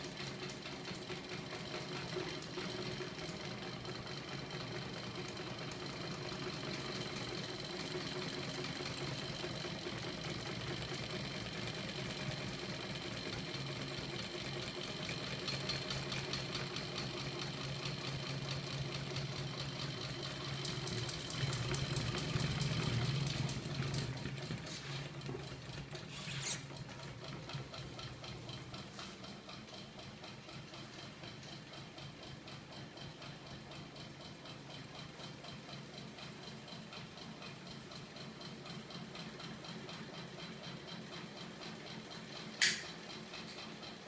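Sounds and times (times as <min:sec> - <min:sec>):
motor hum with fast ticking: 0:00.0 - 0:44.0
sharp click: 0:42.6 - 0:43.0.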